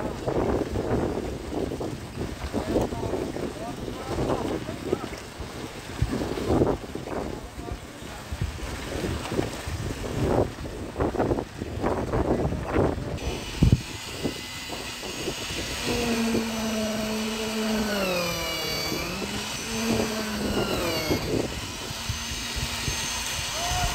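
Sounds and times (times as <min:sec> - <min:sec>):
machinery engine droning: 0:13.2 - 0:23.9.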